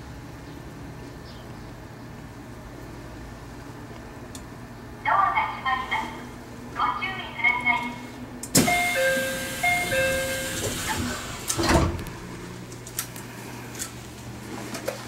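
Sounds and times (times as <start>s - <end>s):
train low hum: 2.2s - 14.5s
train door chime: 8.6s - 11.3s.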